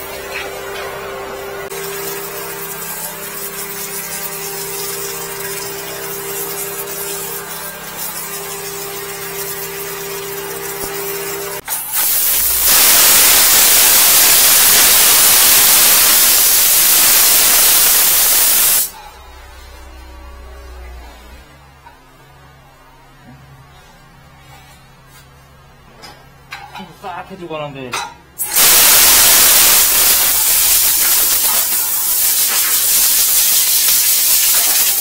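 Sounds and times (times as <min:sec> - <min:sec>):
water jet hissing: 0:01.4 - 0:19.0, 0:28.4 - 0:35.0
machine hum: 0:12.4 - 0:23.6.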